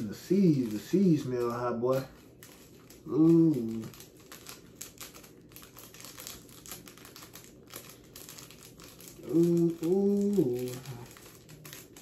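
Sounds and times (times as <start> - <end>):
plastic packet crinkling: 0.0 - 12.0
man humming: 3.1 - 3.9, 9.2 - 11.2.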